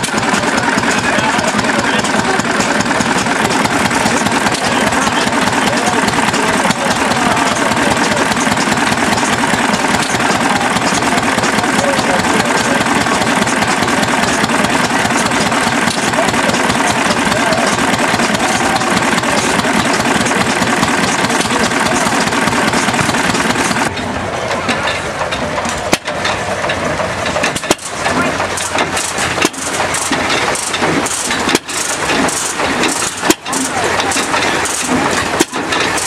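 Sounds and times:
stationary gas engine running: 0.0s - 36.0s.

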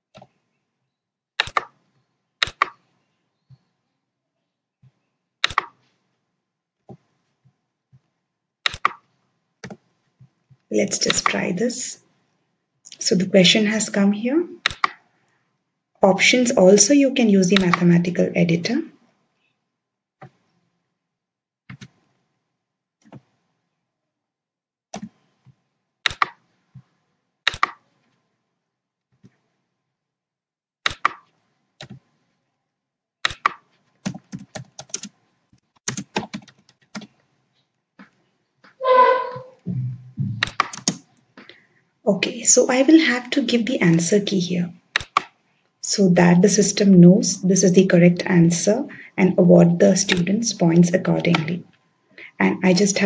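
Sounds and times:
keyboard keystrokes: 1.4s - 1.7s, 40.4s - 41.0s
computer mouse clicks: 1.4s - 1.8s, 2.4s - 2.8s, 5.4s - 5.8s, 8.7s - 9.0s, 14.6s - 15.0s, 17.6s - 17.8s, 26.1s - 26.4s, 27.5s - 27.8s, 30.8s - 32.0s, 40.4s - 41.6s, 45.0s - 45.4s
faint low knocks: 39.0s - 40.5s.

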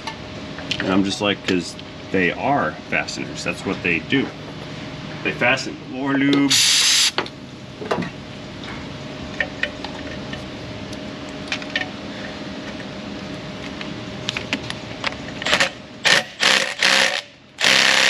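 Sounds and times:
steady hum: 0.0s - 18.0s
power tool bursts: 15.5s - 18.0s.

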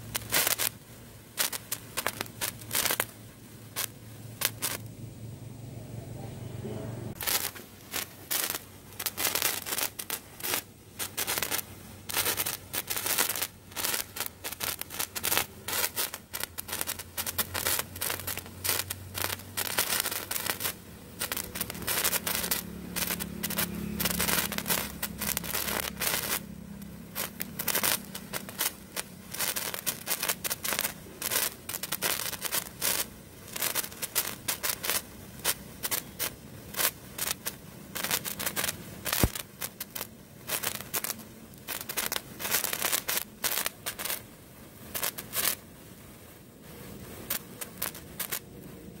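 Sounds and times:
sparkler crackling and fizzing: 0.0s - 5.0s, 6.2s - 49.0s.

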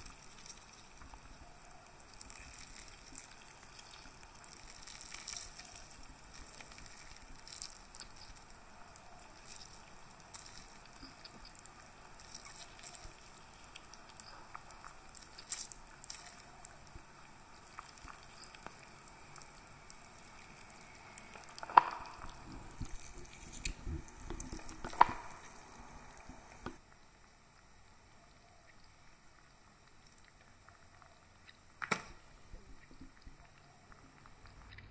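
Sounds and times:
grapefruit pulp squelching: 0.0s - 26.8s.

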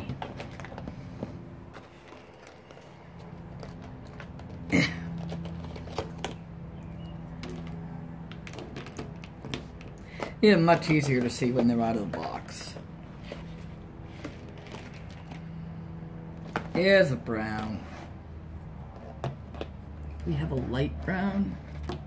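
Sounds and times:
plastic markers clicking and rattling: 1.7s - 15.6s.

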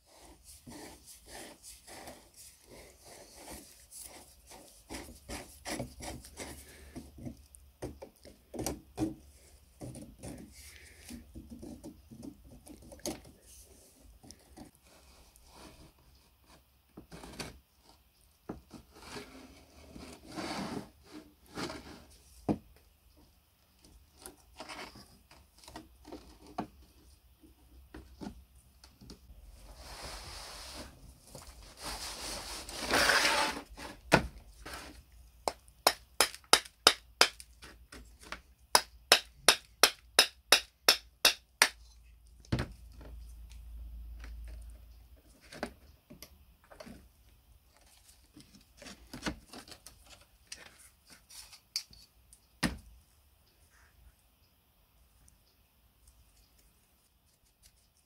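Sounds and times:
rough scraping: 29.6s - 34.0s.

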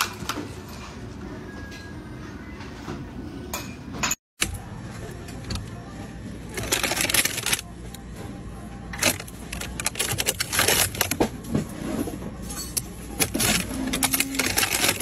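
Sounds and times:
plastic wrappers rustling and crackling: 6.5s - 7.6s, 9.0s - 11.2s, 13.2s - 15.0s.

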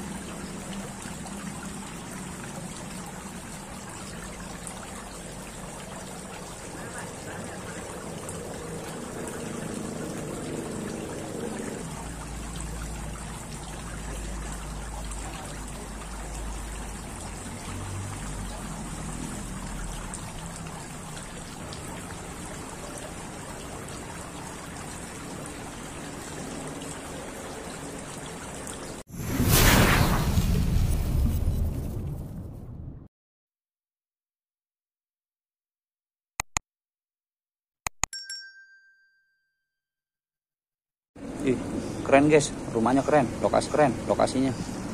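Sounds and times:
fountain water trickling: 0.0s - 29.1s, 41.2s - 44.9s.

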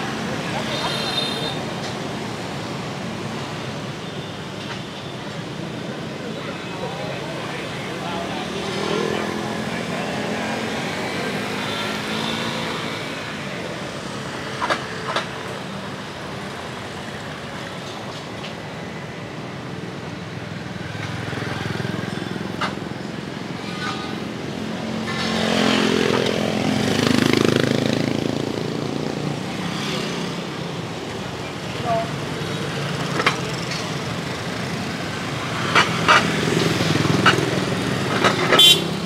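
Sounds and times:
motorbike traffic passing: 0.0s - 39.0s
motorbike passing close: 25.0s - 30.4s.

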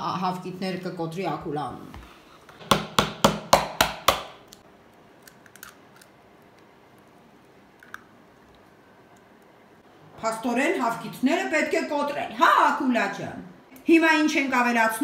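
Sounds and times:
egg knocking on hard edge: 2.6s - 4.4s.

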